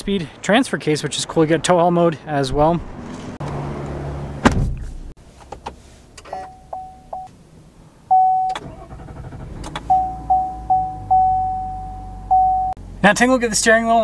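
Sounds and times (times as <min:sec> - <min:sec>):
ticking warning tones: 0:08.1 - 0:12.8
electronic warning chime: 0:09.9 - 0:12.8.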